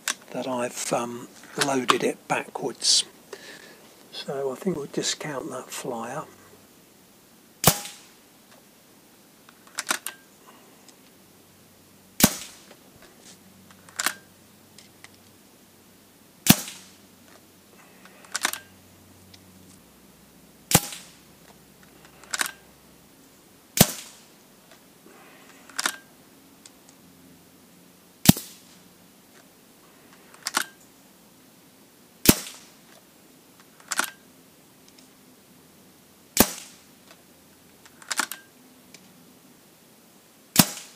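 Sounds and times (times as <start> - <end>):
air rifle shots cracking: 7.6 - 8.2, 12.2 - 12.7, 16.4 - 17.0, 20.7 - 21.2, 23.8 - 24.4, 28.2 - 28.8, 32.2 - 32.8, 36.4 - 36.9, 40.6 - 40.9.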